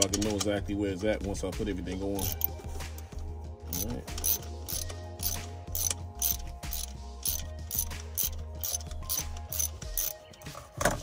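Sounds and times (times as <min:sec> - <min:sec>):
ratchet wrench clicking: 0:02.2 - 0:02.6, 0:03.7 - 0:10.2.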